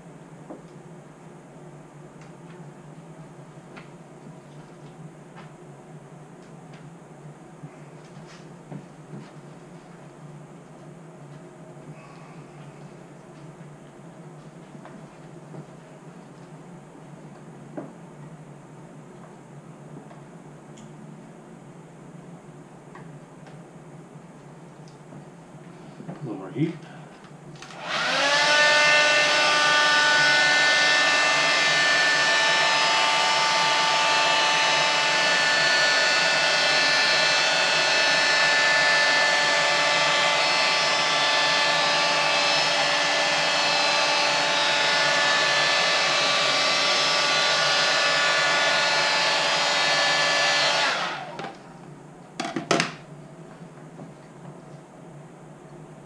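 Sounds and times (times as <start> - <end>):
heat gun fan blowing: 23.5 - 51.8.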